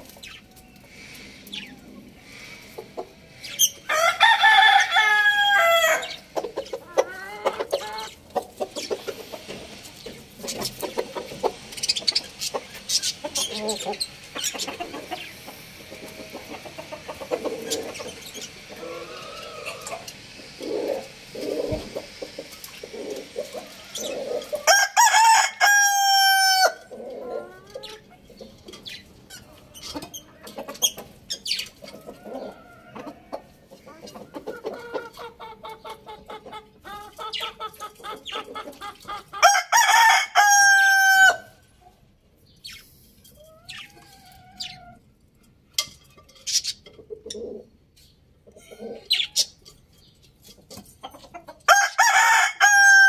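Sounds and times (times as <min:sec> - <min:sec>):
chicken clucking: 0:00.0 - 0:53.0
rooster crowing: 0:03.9 - 0:06.2, 0:24.6 - 0:26.9, 0:39.4 - 0:41.6, 0:51.7 - 0:53.0.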